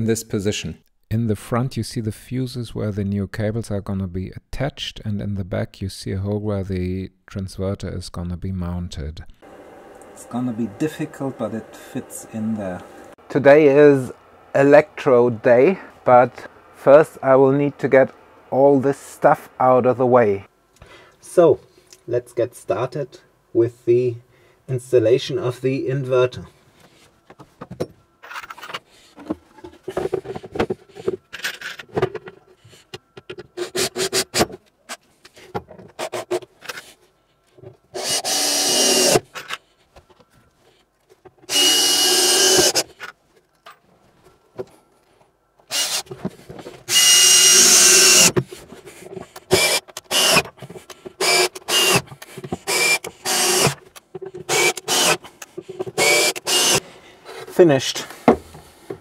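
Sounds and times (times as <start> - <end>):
cordless drill whining: 38.0 - 39.2, 41.5 - 42.8, 45.7 - 46.1, 46.9 - 48.4, 49.5 - 50.5, 51.2 - 53.8, 54.5 - 55.2, 56.0 - 56.8.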